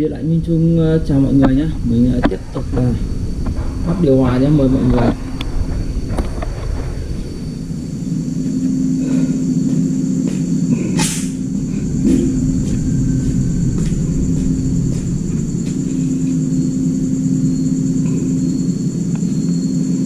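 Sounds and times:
low rumble: 0.0s - 20.0s
machine humming: 0.0s - 20.0s
short hiss: 11.0s - 11.4s.

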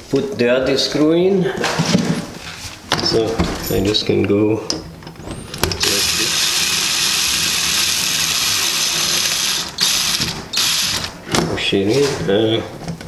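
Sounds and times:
cordless drill driving a screw: 5.8s - 11.2s.

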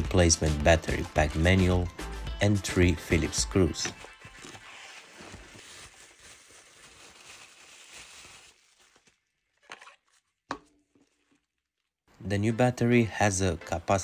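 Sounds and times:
bubble wrap crinkling: 3.9s - 12.0s.

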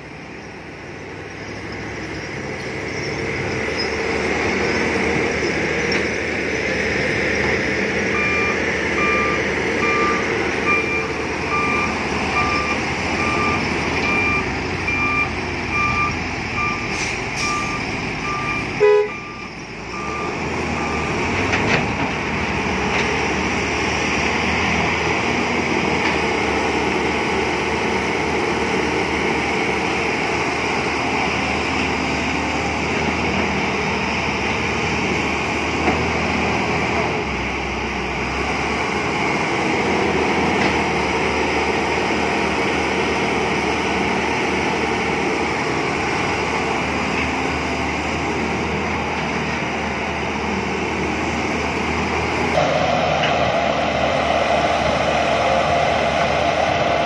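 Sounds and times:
heavy diesel engines running: 0.0s - 57.0s
reversing alarm beeping: 8.1s - 21.5s, 52.5s - 57.0s.

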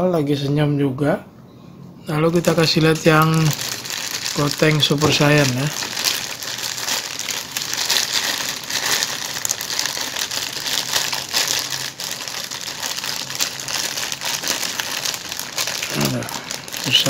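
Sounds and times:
plastic bag crinkling: 2.2s - 17.0s.

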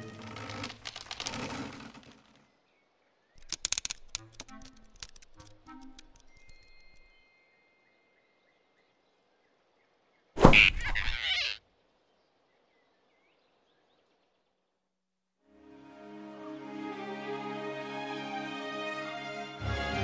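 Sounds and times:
cartoon whoosh and grab: 10.4s - 11.6s.

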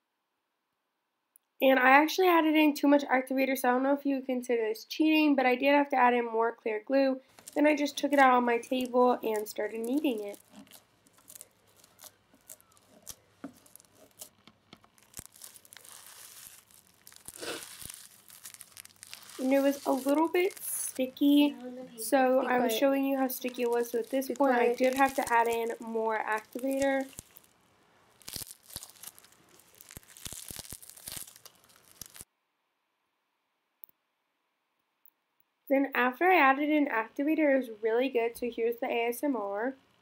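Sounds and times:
sticky slime clicks and crackles: 8.6s - 20.7s, 23.1s - 27.5s, 28.2s - 32.2s.

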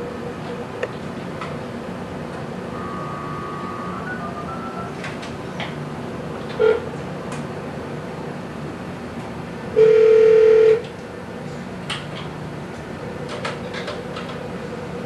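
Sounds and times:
telephone tone: 2.7s - 5.1s, 9.8s - 10.8s.

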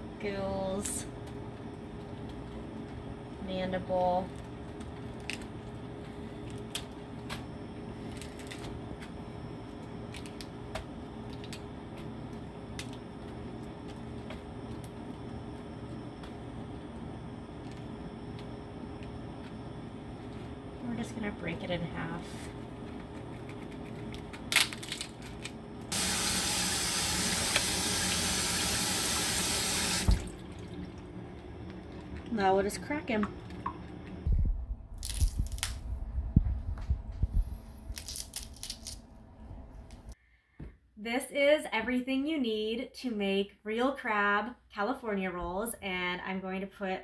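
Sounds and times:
steady low hum: 0.0s - 40.4s
crab shell cracking: 23.1s - 25.6s, 35.0s - 35.8s, 37.9s - 39.0s
faucet running into metal sink: 25.9s - 30.8s
crab shell clicks and snaps: 35.0s - 35.8s, 37.9s - 39.0s.

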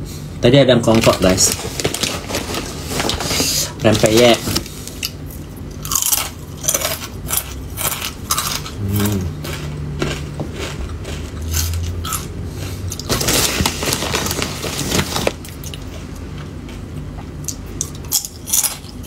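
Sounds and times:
crackers crunching: 0.8s - 19.0s
plastic snack bag crinkling: 0.9s - 4.7s, 13.0s - 16.0s.

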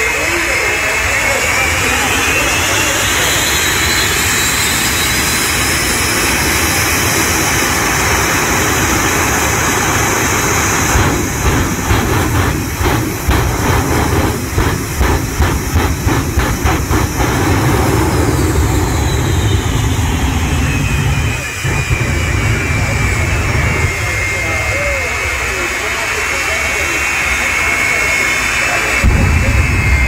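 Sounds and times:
jet engines roaring: 0.0s - 30.0s
pulsing flame bursts: 0.8s - 26.9s, 27.5s - 30.0s.

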